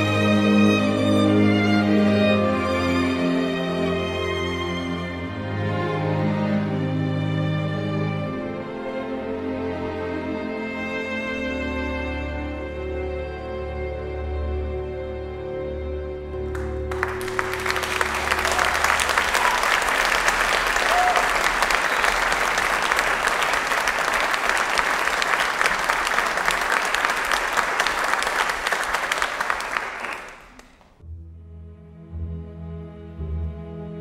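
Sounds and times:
quiet string music: 0:00.0 - 0:18.3, 0:31.0 - 0:34.0
music: 0:00.0 - 0:29.8, 0:31.0 - 0:34.0
audience applauding: 0:16.5 - 0:31.0.

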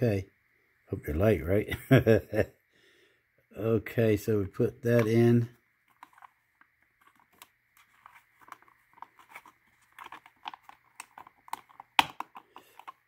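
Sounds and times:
fingers clicking plastic model parts: 0:07.0 - 0:13.0.

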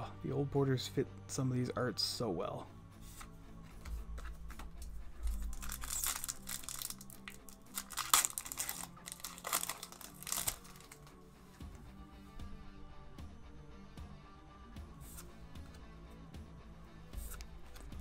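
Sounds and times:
foil wrapper crinkling and tearing: 0:05.2 - 0:11.1.

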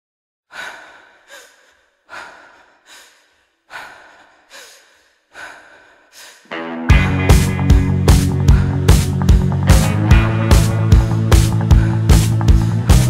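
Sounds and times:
heavy breathing: 0:00.5 - 0:06.6, 0:08.2 - 0:09.3, 0:11.4 - 0:13.0
music: 0:06.5 - 0:13.0.

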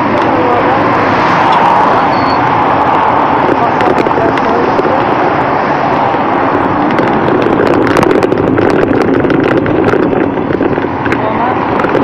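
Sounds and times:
bicycle riding noise: 0:00.0 - 0:12.0
traffic rushing: 0:00.0 - 0:12.0
sharp clicks and rattles: 0:02.4 - 0:12.0.

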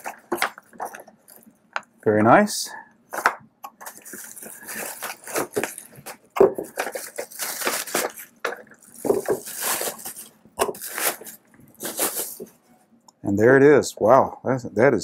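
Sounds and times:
bubble wrap crinkling: 0:03.8 - 0:12.6.

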